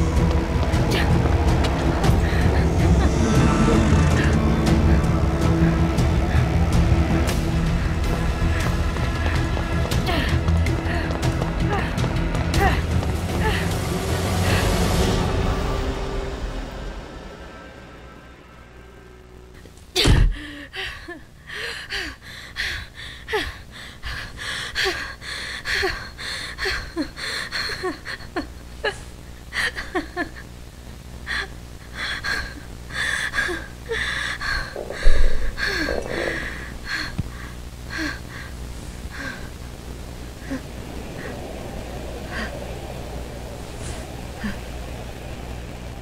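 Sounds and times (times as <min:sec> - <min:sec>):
low thump: 0:34.8 - 0:35.6.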